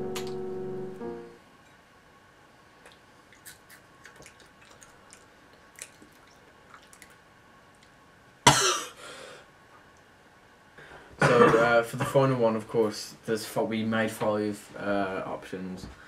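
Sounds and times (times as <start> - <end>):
crunchy chewing: 2.8 - 7.2
person coughing: 8.5 - 9.0, 11.2 - 12.2.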